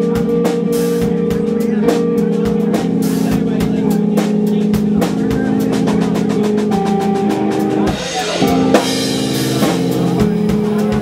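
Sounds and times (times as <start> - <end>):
live rock band playing: 0.0 - 11.0.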